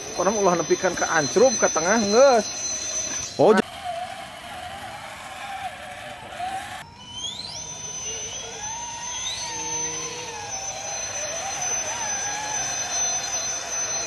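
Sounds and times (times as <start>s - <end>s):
high electric motor whine: 0.0s - 14.0s
lower wavering whine: 0.0s - 14.0s.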